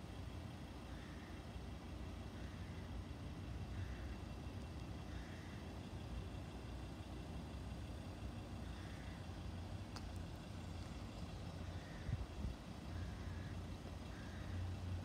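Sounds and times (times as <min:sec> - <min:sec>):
low outdoor rumble: 0:00.0 - 0:15.0
faint click: 0:09.9 - 0:10.3.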